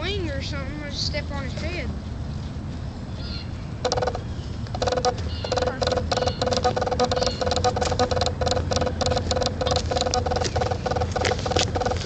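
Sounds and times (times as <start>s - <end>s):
geese honking: 3.2s - 12.0s.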